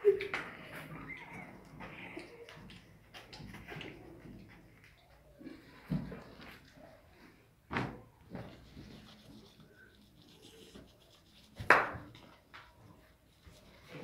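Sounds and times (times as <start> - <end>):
cloth rubbing on microphone: 8.3 - 11.7.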